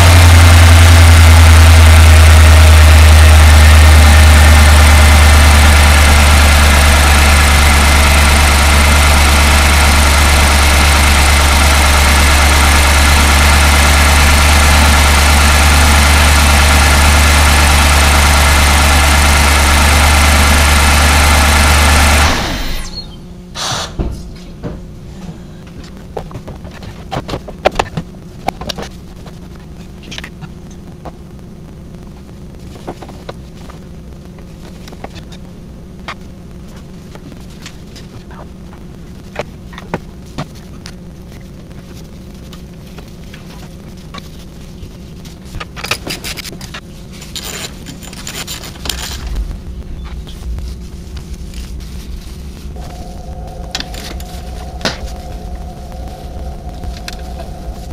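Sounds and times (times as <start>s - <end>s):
car engine idling: 0.0s - 22.6s, 48.7s - 57.9s.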